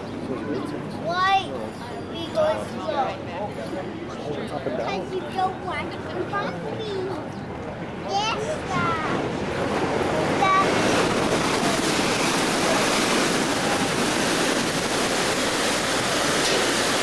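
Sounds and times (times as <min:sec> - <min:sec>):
propeller wake rushing: 0:07.7 - 0:17.0.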